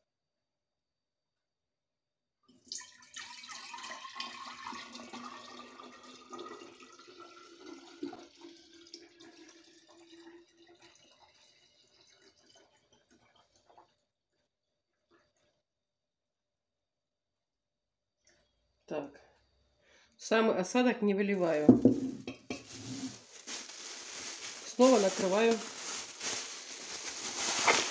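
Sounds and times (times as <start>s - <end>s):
wine pouring into glass jar: 2.7s - 13.8s, 21.7s - 27.9s.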